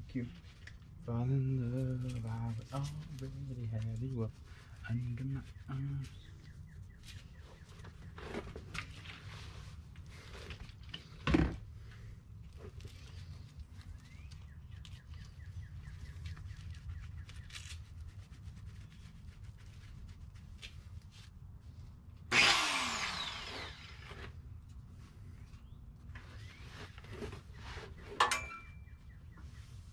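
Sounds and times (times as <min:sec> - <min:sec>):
angle grinder spinning: 0:22.3 - 0:24.3.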